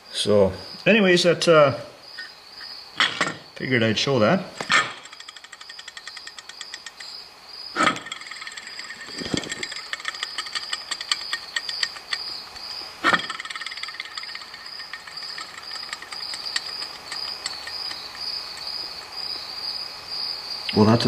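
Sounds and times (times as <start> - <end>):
cricket chirping: 0.0 - 21.0
pulley spinning on rough bearing: 4.7 - 19.0.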